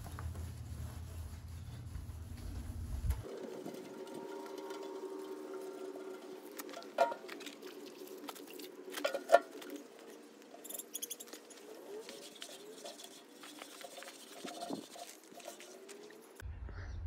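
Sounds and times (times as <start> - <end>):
wet rag rubbing squeakily: 10.6 - 16.4.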